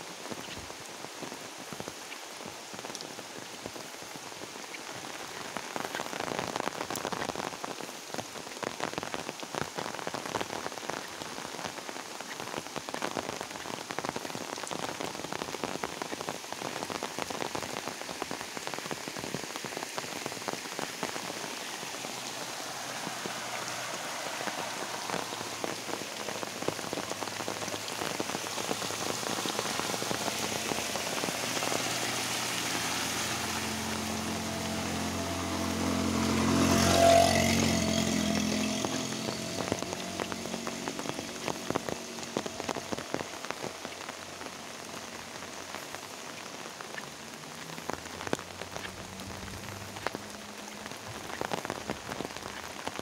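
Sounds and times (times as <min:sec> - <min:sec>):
raindrops ticking: 0:00.0 - 0:53.0
steady rain falling: 0:00.0 - 0:53.0
motorbike passing: 0:21.7 - 0:26.5, 0:29.1 - 0:42.8.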